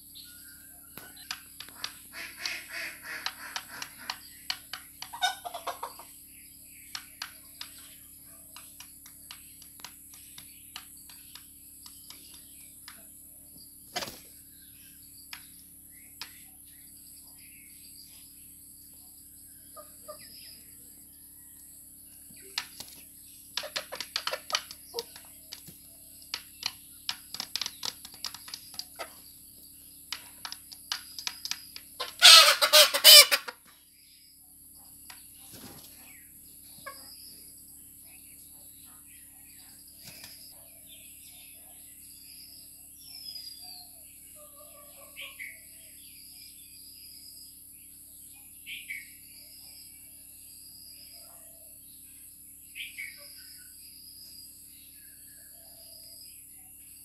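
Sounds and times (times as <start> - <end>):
chickens clucking: 1.0 - 6.2, 13.9 - 14.3, 22.5 - 29.3, 31.2 - 33.7, 36.8 - 37.2
beaks tapping against bowl: 23.6 - 29.2, 30.1 - 32.1.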